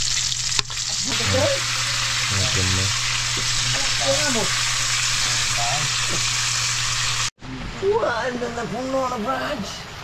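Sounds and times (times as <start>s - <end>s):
food sizzling in hot oil: 0.0s - 7.3s.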